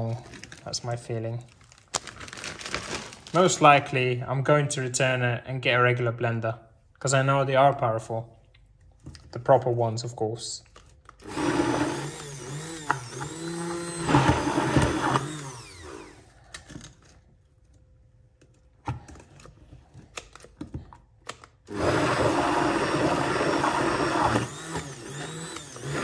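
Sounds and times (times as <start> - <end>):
hand blender motor: 11.2 - 16.4, 21.7 - 26.0.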